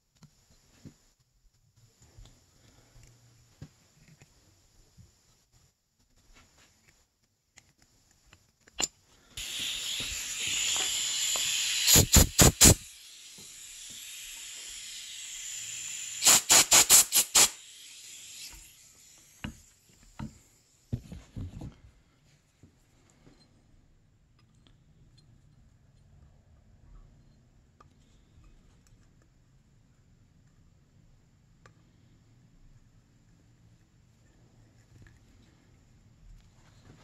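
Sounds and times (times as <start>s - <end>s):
compressed air hissing: 9.3s - 20.7s
quick air blasts: 9.4s - 19.8s.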